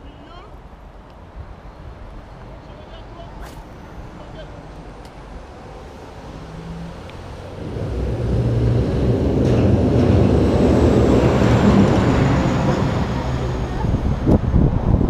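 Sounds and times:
vehicle engine and road noise: 0.0 - 15.0.

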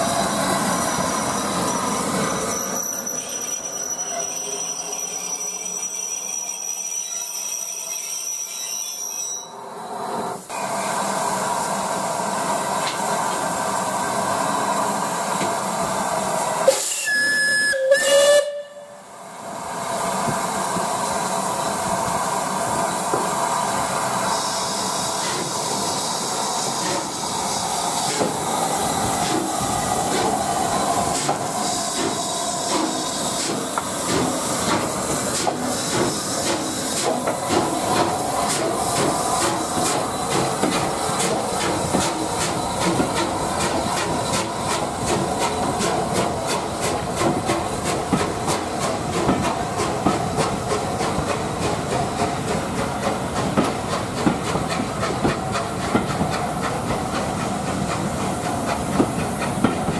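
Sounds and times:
steam hissing: 9.8 - 18.6, 19.4 - 59.9
steam whistle blasts: 16.6 - 19.1.

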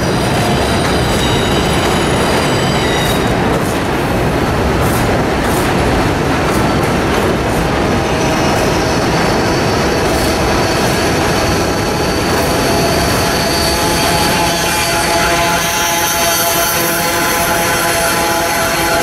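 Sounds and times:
high wheel squeal: 0.0 - 3.4, 8.2 - 17.0
subway train wheels rumbling: 0.0 - 19.0.

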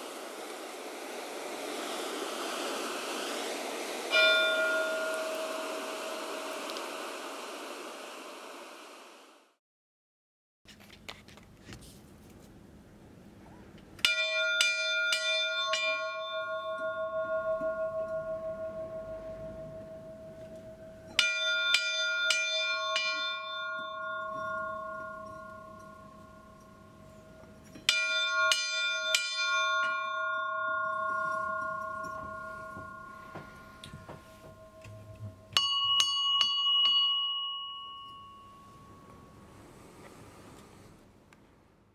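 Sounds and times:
church bell ringing: 4.1 - 7.0, 14.0 - 39.4.

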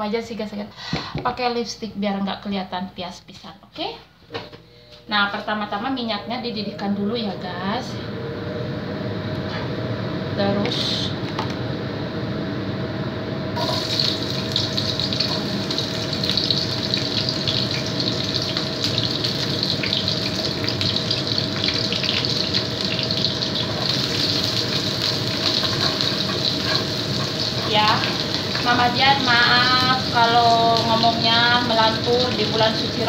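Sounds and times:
food sizzling in hot oil: 13.6 - 33.0.

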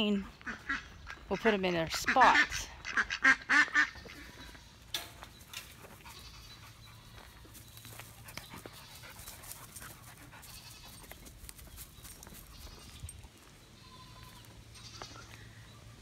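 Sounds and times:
dogs panting: 5.4 - 12.5.

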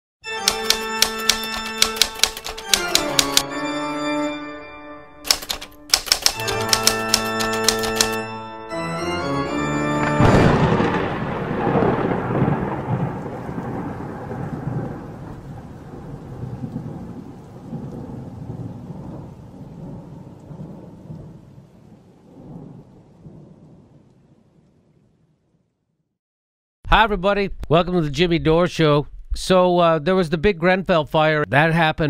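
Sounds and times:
thunder crack and rolling rumble: 10.2 - 25.3.

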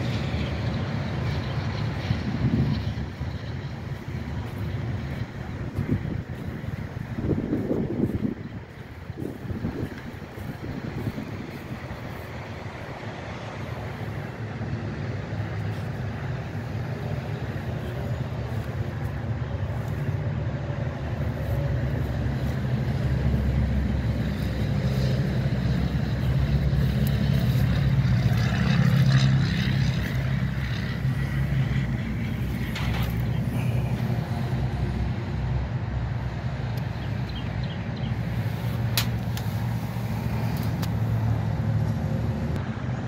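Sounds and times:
vehicle engine rumbling: 0.0 - 43.0.

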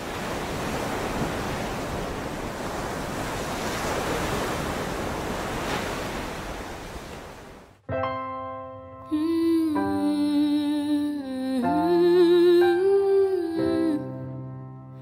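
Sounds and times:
ocean waves washing onto beach: 0.0 - 7.8.

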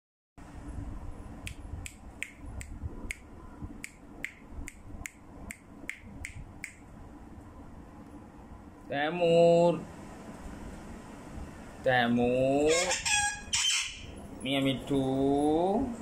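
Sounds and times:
low room rumble: 0.4 - 16.0
sharp evenly spaced clicks: 1.4 - 6.8.

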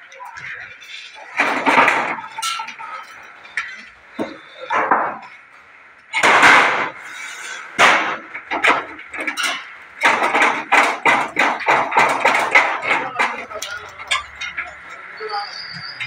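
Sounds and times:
shuttering crashing clatter: 0.6 - 5.3, 6.1 - 15.0
bangs and knocks: 1.2 - 2.9, 3.7 - 5.3, 6.1 - 7.0, 7.7 - 14.9.

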